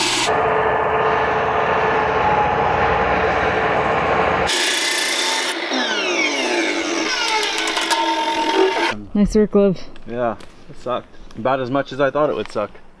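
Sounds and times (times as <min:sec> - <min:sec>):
circular saw cutting wood: 0:00.0 - 0:09.0
saw motor spinning down: 0:00.0 - 0:09.0
clicks: 0:07.0 - 0:09.0.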